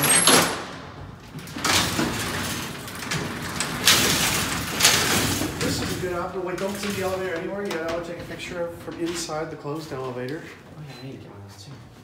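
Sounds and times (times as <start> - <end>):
metal gate clanks: 0.0 - 0.7
wooden elevator gate closing: 0.0 - 10.1
metal mesh gate rattling: 1.4 - 9.4.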